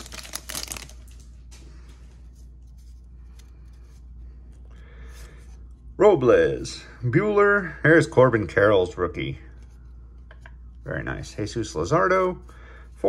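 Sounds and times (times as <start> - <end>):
foil wrapper crinkling: 0.0 - 1.6
cards rustling: 0.0 - 5.7.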